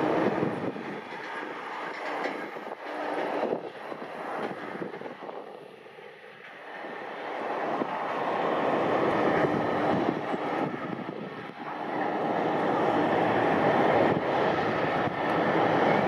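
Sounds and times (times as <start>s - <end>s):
airliner engine noise: 0.0s - 16.0s.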